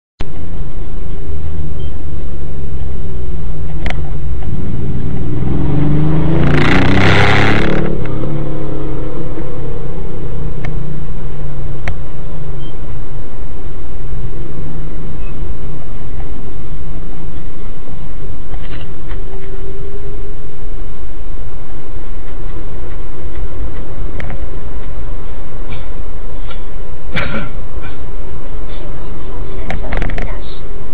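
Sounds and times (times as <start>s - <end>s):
car engine and road noise: 0.2s - 30.9s
vehicle passing close: 3.5s - 15.9s.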